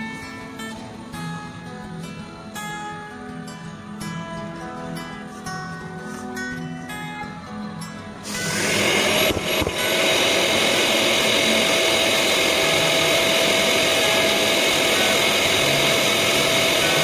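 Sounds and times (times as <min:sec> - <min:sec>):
drywall sander running: 0:08.3 - 0:17.0.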